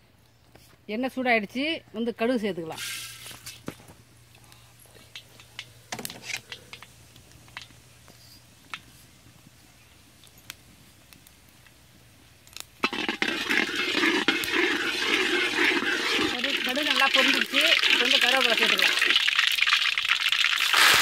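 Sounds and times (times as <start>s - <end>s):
mustard seeds popping in oil: 5.0s - 7.8s, 10.2s - 21.0s
seeds crackling and spluttering: 10.1s - 21.0s
metal ladle stirring: 12.8s - 19.9s.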